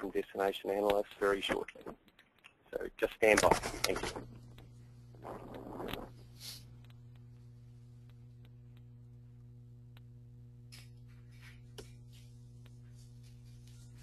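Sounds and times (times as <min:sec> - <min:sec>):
low electrical hum: 0:00.0 - 0:14.0
faint clicks: 0:06.8 - 0:09.0.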